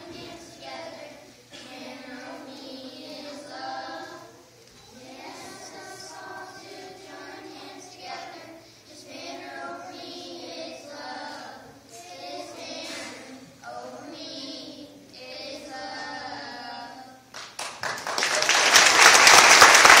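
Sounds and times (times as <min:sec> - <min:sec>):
children singing together: 0:00.0 - 0:17.4
loud applause: 0:17.3 - 0:20.0.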